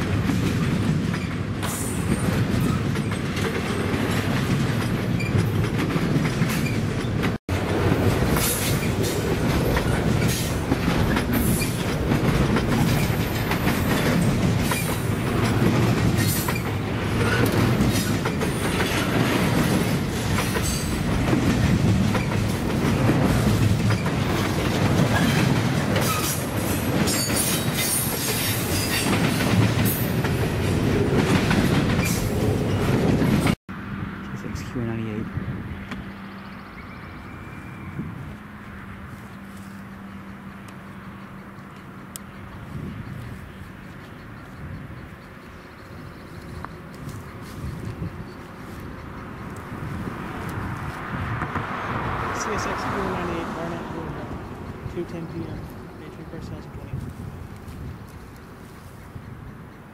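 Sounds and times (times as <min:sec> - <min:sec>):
train wheels clattering over rail joints: 0:00.0 - 0:33.6.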